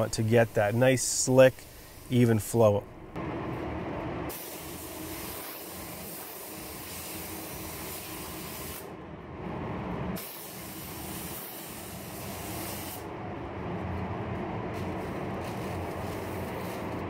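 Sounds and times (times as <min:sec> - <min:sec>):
paint spray gun hissing: 0:00.0 - 0:02.4, 0:04.3 - 0:08.9, 0:10.2 - 0:13.0, 0:14.8 - 0:17.0
low rumble: 0:09.0 - 0:10.2, 0:13.0 - 0:17.0.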